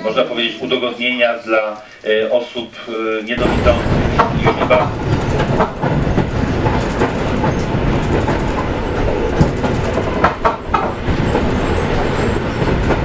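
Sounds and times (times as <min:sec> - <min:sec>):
train wheels rumbling on rails: 0:03.3 - 0:13.0.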